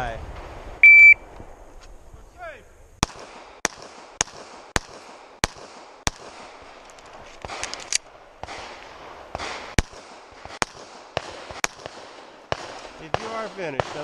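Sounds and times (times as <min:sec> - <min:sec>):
pistol shots: 0:03.0 - 0:06.8, 0:07.4 - 0:14.0
light gun clicks: 0:06.8 - 0:08.6.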